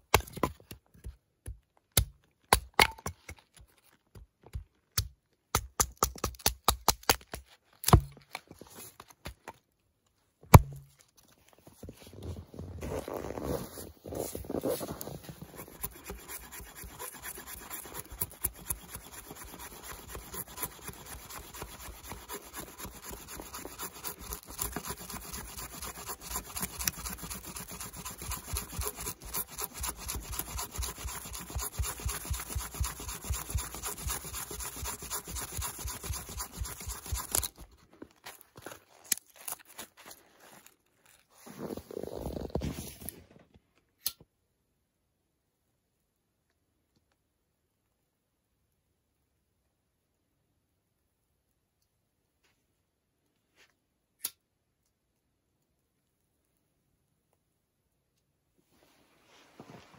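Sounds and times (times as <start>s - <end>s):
axe scraping wood: 10.5s - 11.0s, 12.8s - 40.6s
short rustle: 58.6s - 59.9s.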